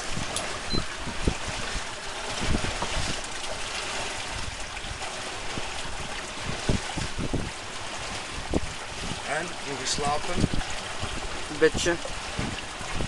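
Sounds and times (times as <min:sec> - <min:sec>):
water rushing along hull: 0:00.0 - 0:13.0.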